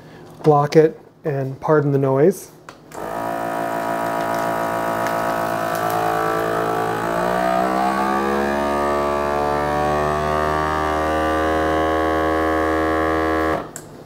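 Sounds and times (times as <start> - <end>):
vacuum sealer pump hum: 2.9 - 14.0.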